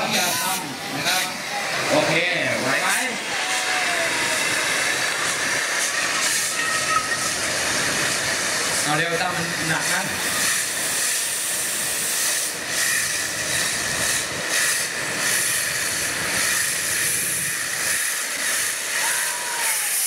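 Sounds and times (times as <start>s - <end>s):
gas jet flames hissing: 0.0s - 20.0s.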